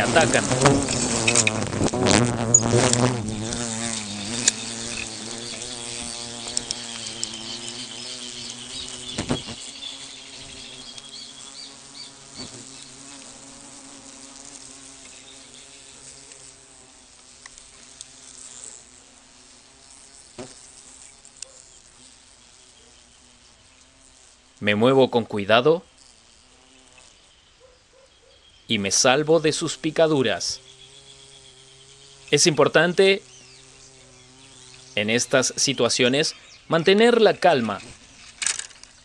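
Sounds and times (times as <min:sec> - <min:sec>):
wasps buzzing in flight: 0:00.0 - 0:39.0
sharp ticks: 0:00.8 - 0:05.7, 0:06.4 - 0:09.6.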